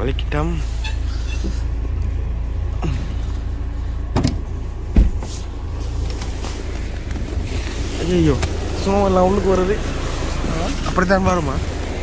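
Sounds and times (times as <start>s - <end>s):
car door thump: 4.1s - 5.3s.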